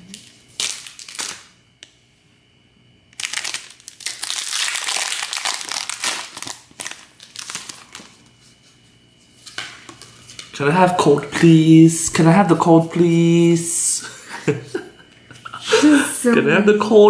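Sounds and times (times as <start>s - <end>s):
foil wrapper crinkling: 0.2s - 1.6s, 3.2s - 8.3s.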